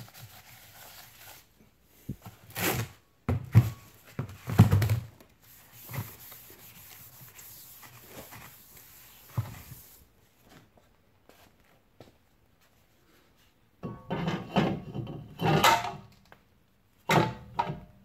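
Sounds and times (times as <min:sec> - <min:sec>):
paper towel rubbing metal: 0:05.5 - 0:10.0.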